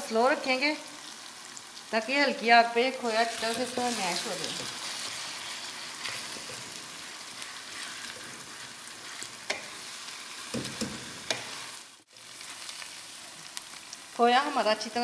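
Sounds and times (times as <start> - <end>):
food sizzling in a pan: 0.0 - 15.0
spatula stirring: 3.2 - 11.8.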